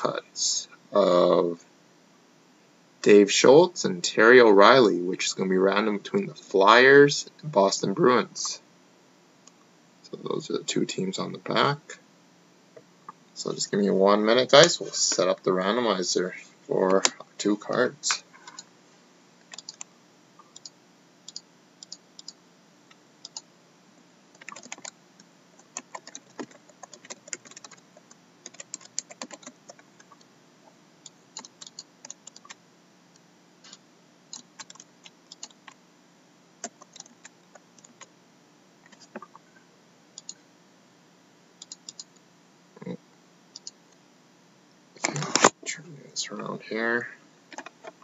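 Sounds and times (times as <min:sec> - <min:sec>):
typing on computer keyboard: 0:19.5 - 0:19.9, 0:24.4 - 0:25.0, 0:25.6 - 0:27.8, 0:28.4 - 0:30.2, 0:34.3 - 0:35.8, 0:36.6 - 0:38.1.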